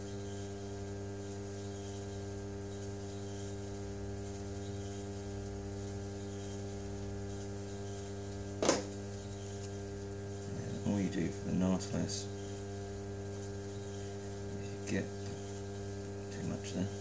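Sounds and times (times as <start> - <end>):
pottery wheel motor humming: 0.0 - 17.0
brief knock: 8.6 - 8.9.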